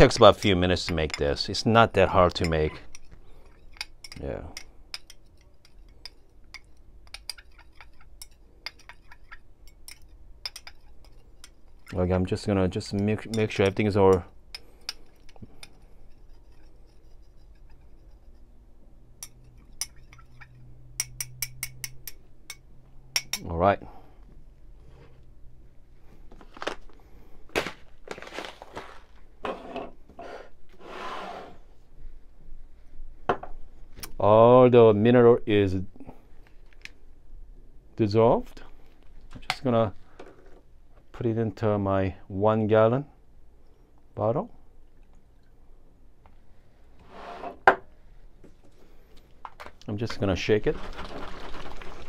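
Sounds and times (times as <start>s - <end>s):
metal spoon clinking in glass cup: 2.4s - 12.0s, 19.2s - 22.6s, 23.2s - 23.5s
packages rustling and crinkling: 26.2s - 29.3s, 50.6s - 52.0s.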